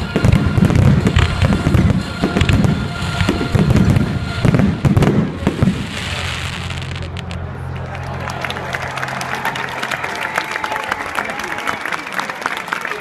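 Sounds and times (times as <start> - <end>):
fireworks booming and cracking: 0.0 - 7.5.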